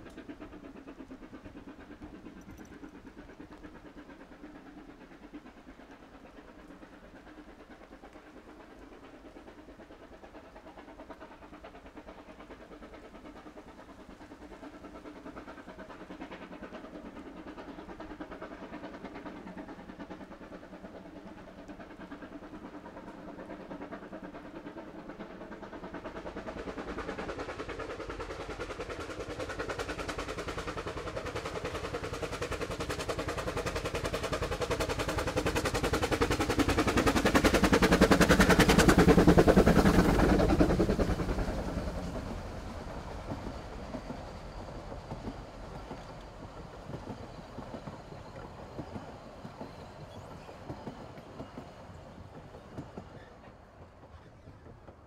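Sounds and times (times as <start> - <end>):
steam locomotive exhaust beats: 0.0 - 55.0
wheels clicking over rail joints: 11.0 - 55.0.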